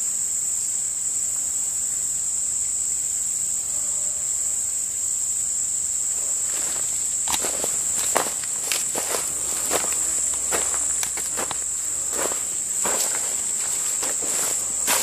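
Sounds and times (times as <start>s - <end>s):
insects chorus: 0.0s - 15.0s
footsteps on gravel: 6.4s - 15.0s.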